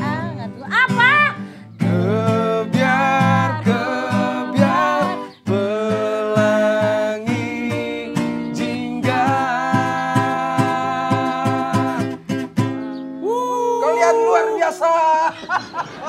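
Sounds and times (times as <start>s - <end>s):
acoustic guitar strumming: 0.0s - 13.2s.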